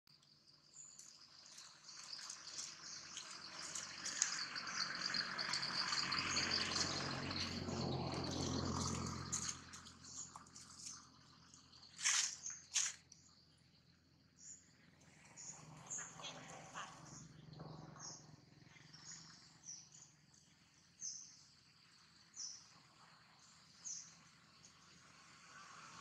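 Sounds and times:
insects chirring: 0.1 - 14.8.

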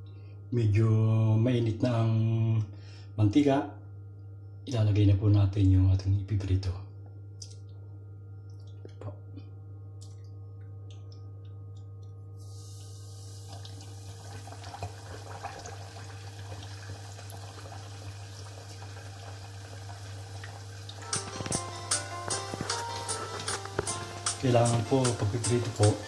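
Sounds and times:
meat sizzling in hot oil: 12.4 - 21.3, 23.0 - 26.0.

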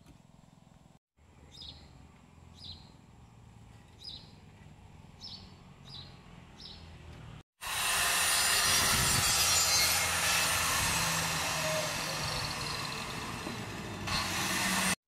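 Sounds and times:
angle grinder cutting brick: 7.6 - 15.0.

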